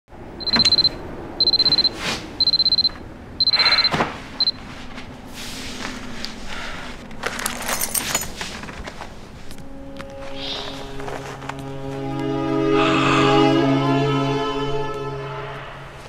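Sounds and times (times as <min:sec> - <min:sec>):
alarm clock beeping: 0:00.4 - 0:04.6
bedding rustling: 0:04.0 - 0:11.9.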